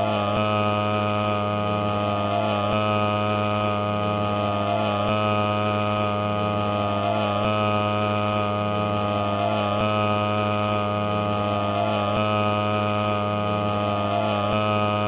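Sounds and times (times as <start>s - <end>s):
droning hum with overtones: 0.0s - 15.0s.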